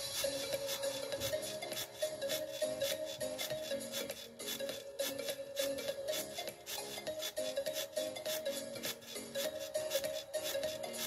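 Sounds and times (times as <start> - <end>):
background music with stepping melody: 0.0 - 11.0
short rasping swishes: 0.0 - 11.0.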